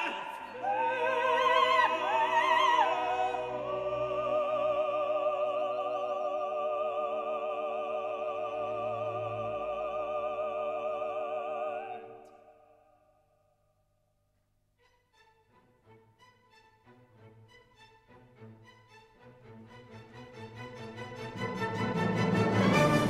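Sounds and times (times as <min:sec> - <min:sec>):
operatic singing over sustained chords: 0:00.0 - 0:12.6.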